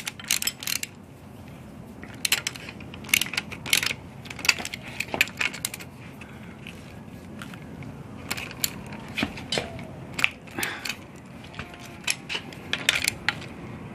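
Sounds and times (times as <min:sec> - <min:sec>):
wrench clicking on metal: 0:00.0 - 0:01.0, 0:02.0 - 0:05.9, 0:08.2 - 0:13.6.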